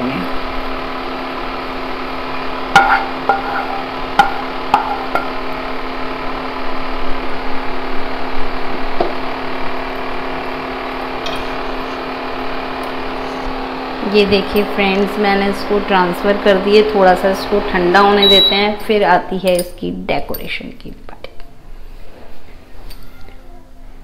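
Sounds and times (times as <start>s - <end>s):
steady mechanical hum: 0.0s - 24.0s
wooden spatula scraping frying pan: 2.8s - 3.9s.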